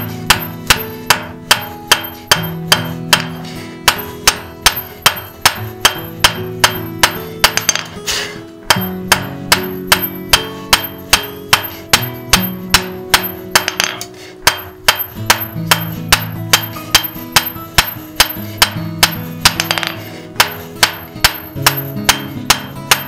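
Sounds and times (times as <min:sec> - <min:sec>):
hammer striking iron on anvil: 0:00.0 - 0:23.0.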